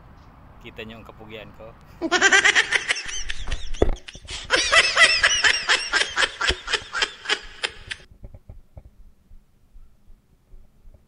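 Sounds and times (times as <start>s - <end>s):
hearty laughter: 2.0s - 8.0s.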